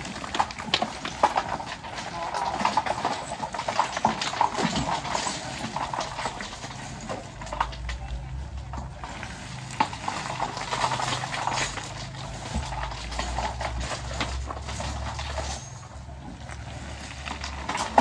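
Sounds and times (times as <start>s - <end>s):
heavy machine engine running: 0.0s - 18.0s
irregular clattering and knocking: 0.0s - 18.0s.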